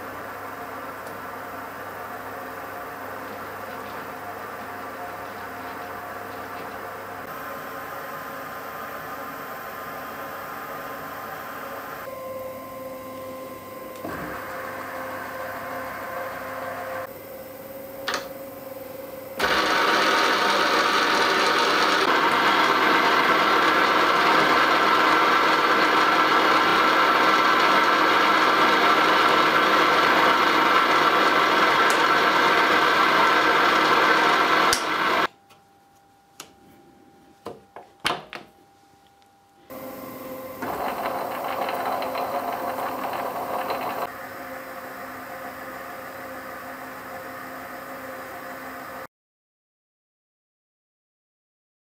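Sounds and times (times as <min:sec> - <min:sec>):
lathe running: 0:19.4 - 0:35.3, 0:39.7 - 0:46.2.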